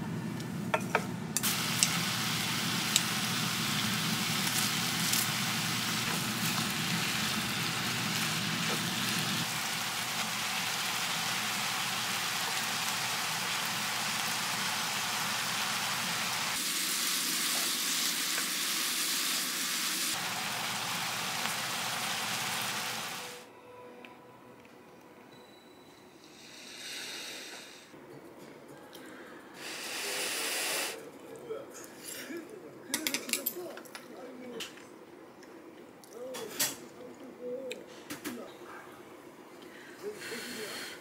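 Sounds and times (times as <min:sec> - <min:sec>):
food sizzling in a pan: 0:01.4 - 0:23.4.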